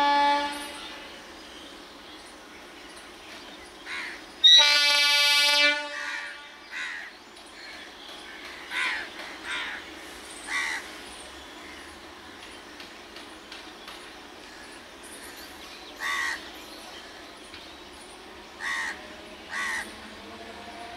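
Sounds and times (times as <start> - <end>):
train horn blast: 0.0 - 1.2, 4.5 - 6.6, 19.0 - 20.9
faint rumble of trains: 0.0 - 20.9
crows cawing: 6.7 - 7.1, 8.5 - 9.8, 10.5 - 10.9, 16.0 - 16.4, 18.6 - 19.9.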